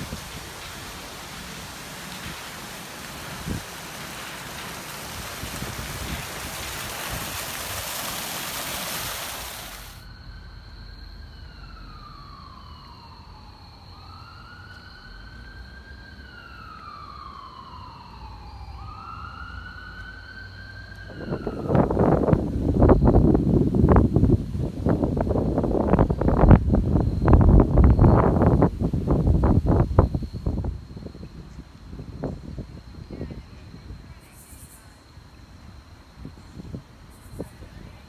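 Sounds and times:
steady rushing hiss: 0.0 - 10.7
emergency siren wailing: 9.9 - 24.1.

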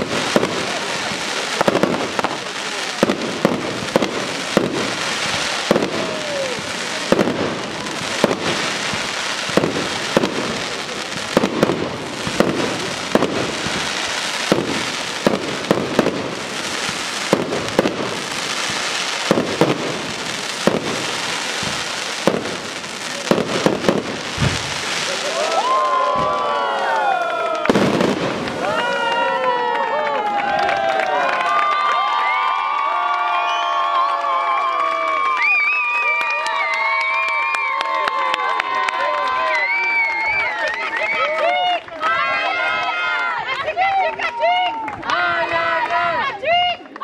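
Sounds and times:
fireworks crackling and hissing: 0.0 - 31.1, 32.0 - 47.0
firework shell bursts: 23.3 - 25.4.

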